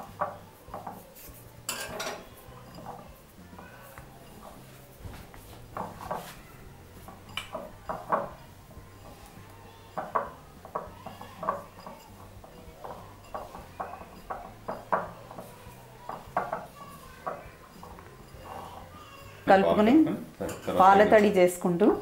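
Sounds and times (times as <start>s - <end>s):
hand scraping glass bowl: 0.0s - 19.5s
fingers tapping glass: 5.7s - 19.3s.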